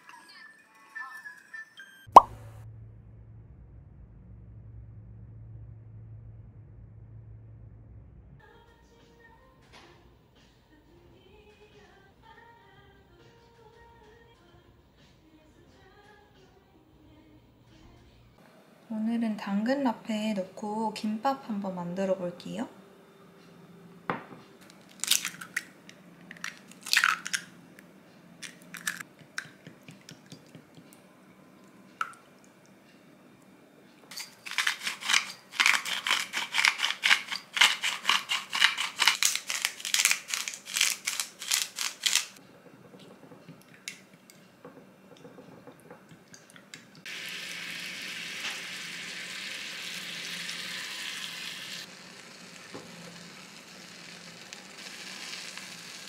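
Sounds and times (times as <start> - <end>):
salt grinder crunching: 24.8 - 25.7, 28.4 - 29.5, 34.1 - 42.4
egg sizzling in hot pan: 47.1 - 56.0.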